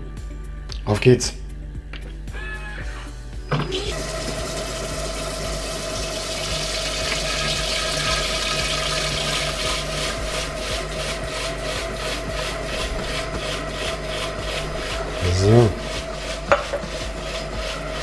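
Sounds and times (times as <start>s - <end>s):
cooking machine motor whine: 3.4s - 18.0s
liquid hissing: 3.5s - 18.0s
whisk swishing rhythmically: 3.7s - 18.0s.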